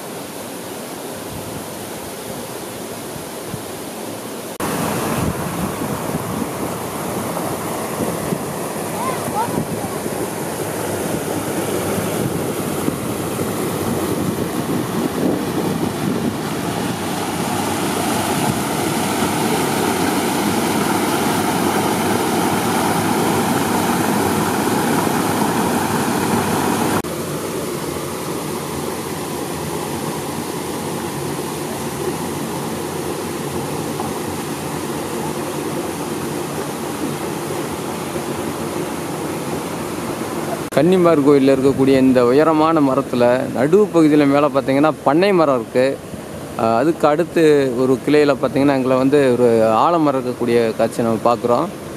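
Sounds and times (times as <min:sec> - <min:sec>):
river water flowing over weir: 0:00.0 - 0:51.9.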